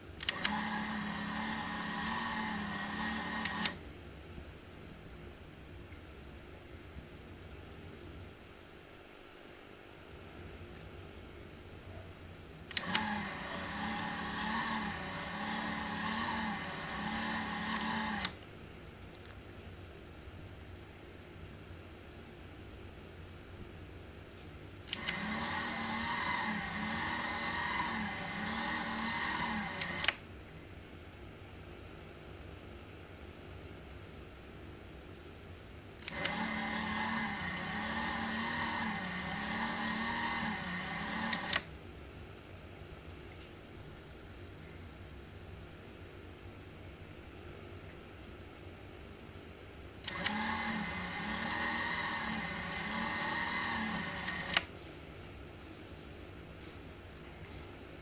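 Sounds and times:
motor switch clicks: 0.2s - 3.8s, 12.7s - 18.4s, 24.4s - 30.2s, 36.0s - 41.7s, 50.0s - 54.7s
toy washing machine motor whining: 0.2s - 3.8s, 12.7s - 18.4s, 24.9s - 30.1s, 36.0s - 41.6s, 50.0s - 54.7s.

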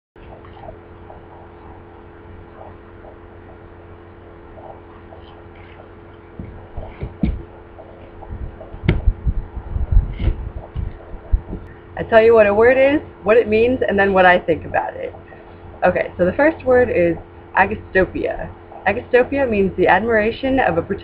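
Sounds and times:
low hum: 0.2s - 21.0s
footsteps on wooden ramp: 6.3s - 11.6s.

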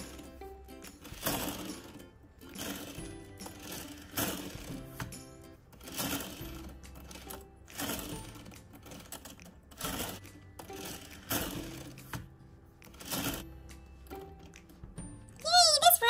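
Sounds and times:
toy coaster cars rattling on track: 0.8s - 5.0s, 5.8s - 12.2s, 12.9s - 13.4s.

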